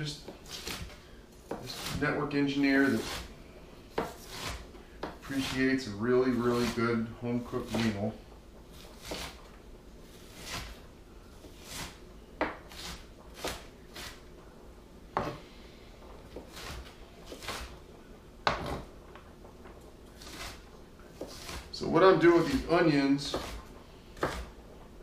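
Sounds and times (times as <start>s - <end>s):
knife slicing onion on board: 0.3s - 3.3s, 3.9s - 8.0s, 8.7s - 10.8s, 11.4s - 14.2s, 16.3s - 17.8s, 18.4s - 18.9s, 20.2s - 20.6s, 21.2s - 24.6s.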